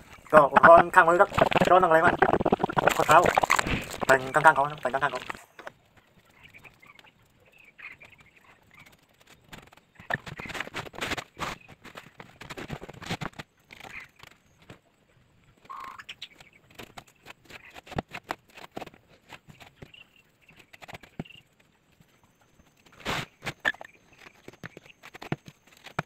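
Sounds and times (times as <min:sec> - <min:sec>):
wet cement scraped by hand: 0:00.7 - 0:05.4.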